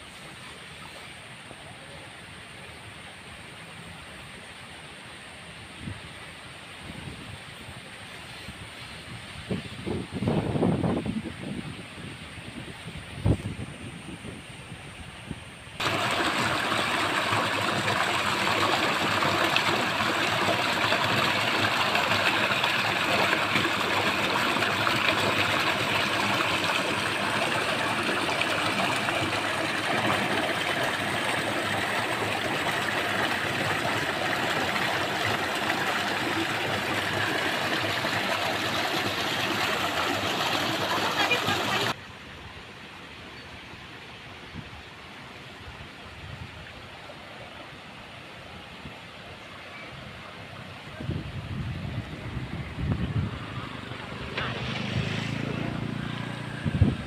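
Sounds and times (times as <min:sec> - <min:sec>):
water rushing through channel: 0:15.8 - 0:42.0, 0:45.1 - 0:57.0.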